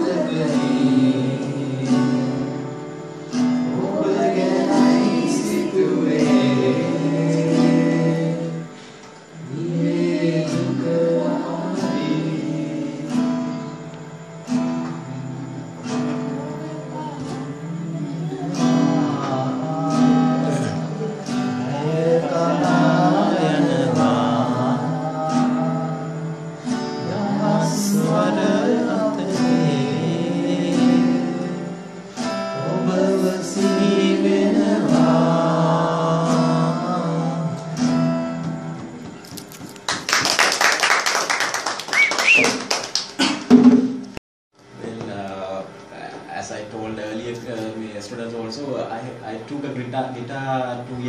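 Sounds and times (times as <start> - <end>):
acoustic guitar strumming: 0.0 - 40.0
woman singing: 16.3 - 24.6
people clapping: 39.2 - 43.5.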